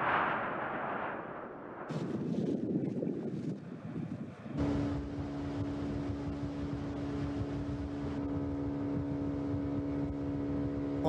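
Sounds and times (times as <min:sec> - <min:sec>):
boat motor running: 0:04.6 - 0:11.0.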